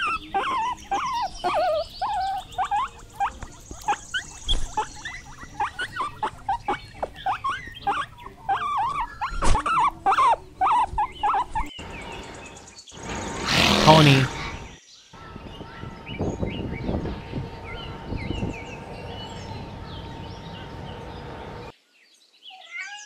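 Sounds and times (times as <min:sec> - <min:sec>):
guinea pigs squeaking: 0:00.0 - 0:12.3.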